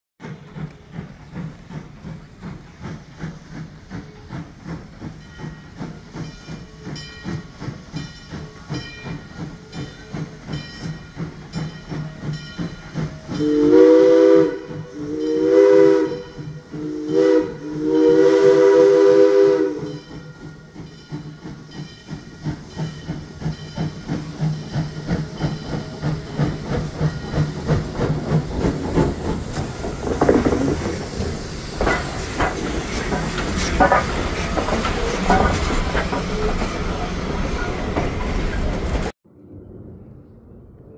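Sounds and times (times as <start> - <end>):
locomotive steam hissing: 0.2 - 39.1
rhythmic steam pulsing: 0.2 - 39.1
steam chime whistle blasts: 12.6 - 21.3.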